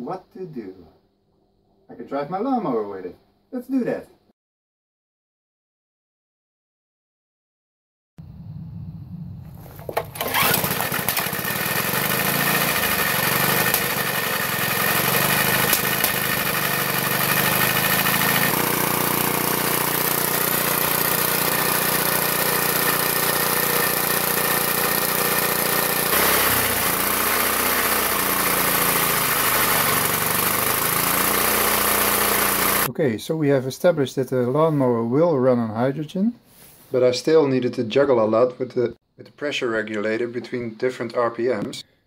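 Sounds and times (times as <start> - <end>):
small lawn mower engine running: 9.6 - 32.9.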